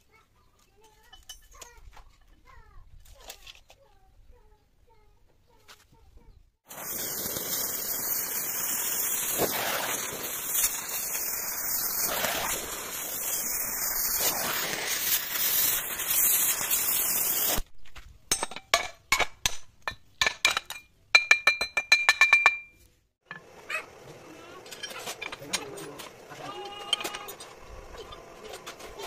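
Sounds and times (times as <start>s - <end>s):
rushing hissing noise: 6.7s - 17.6s
metallic clinks and taps: 19.9s - 23.4s.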